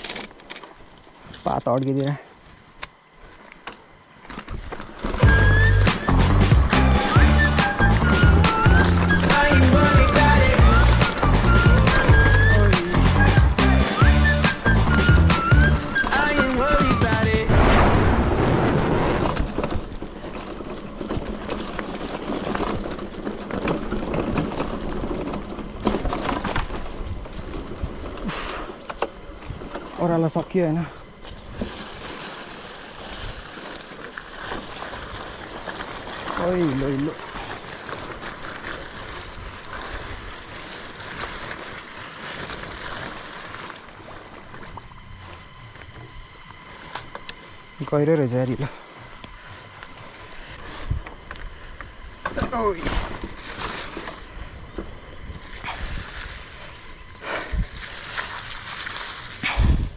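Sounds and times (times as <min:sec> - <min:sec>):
bike clicks and rattles: 0:00.0 - 0:17.5, 0:19.0 - 0:32.0, 0:32.6 - 0:59.9
bike tyre noise rushing: 0:02.4 - 0:59.9
faint bike ticks: 0:33.6 - 0:59.6.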